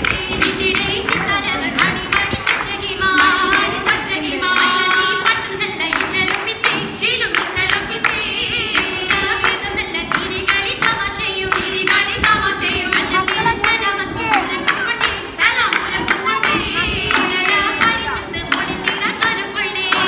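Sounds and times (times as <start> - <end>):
people singing: 0.0 - 20.0
rhythmic hand claps: 0.0 - 20.0.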